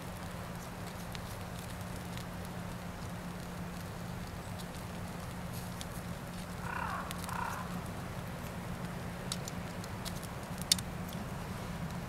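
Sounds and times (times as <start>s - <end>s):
animal calls chirping: 6.6s - 7.8s.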